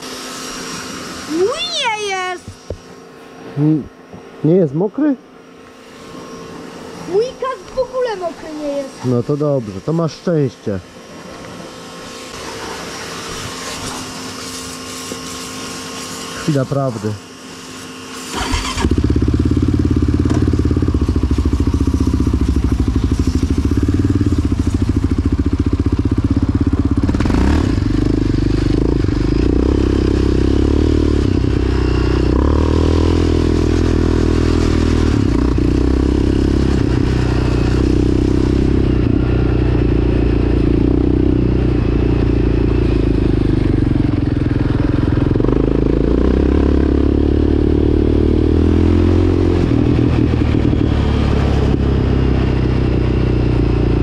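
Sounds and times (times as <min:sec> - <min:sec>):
quad engine revving loud: 0:18.3 - 0:54.0.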